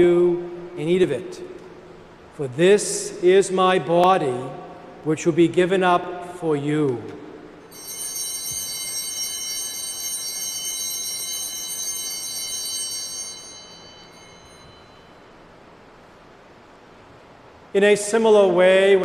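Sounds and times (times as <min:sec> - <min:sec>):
altar bells ringing: 0:07.7 - 0:15.7.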